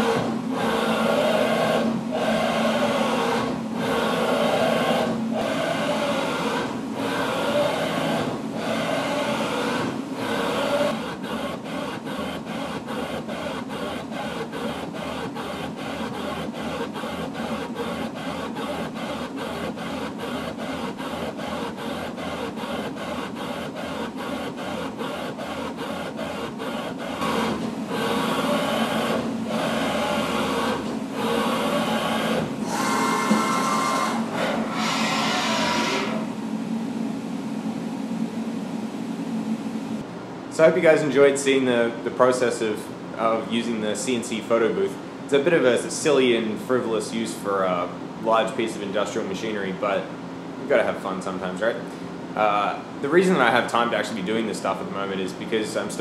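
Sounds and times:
machine axis drives whirring: 0.0 - 37.2.

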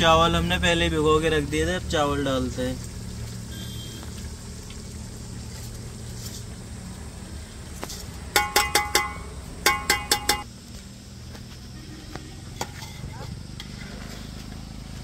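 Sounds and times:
metal spoon clinking on pot: 8.4 - 10.4.

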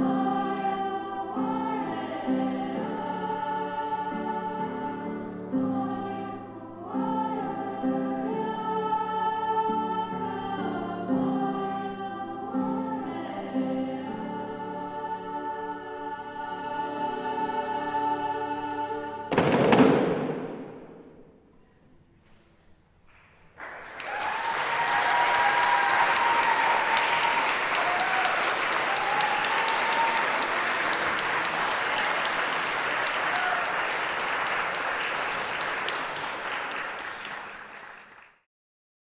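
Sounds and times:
audience applauding: 23.6 - 38.5.

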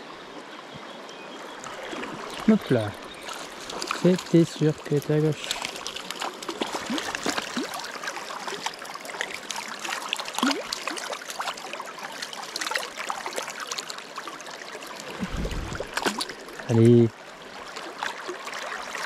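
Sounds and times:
river water rippling: 0.0 - 19.0
fish splashing at surface: 15.0 - 16.6
dull low thump: 15.1 - 16.1.

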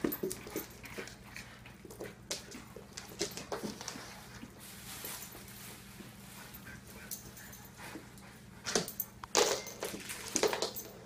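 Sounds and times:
dog claws clicking on floor: 0.0 - 4.5, 6.9 - 11.0.

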